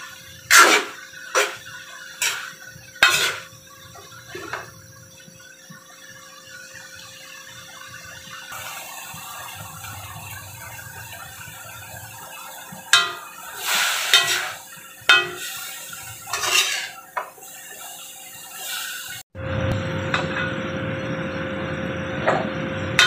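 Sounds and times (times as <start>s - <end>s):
metal utensils scraping a wok: 0.0s - 4.8s, 12.8s - 19.2s.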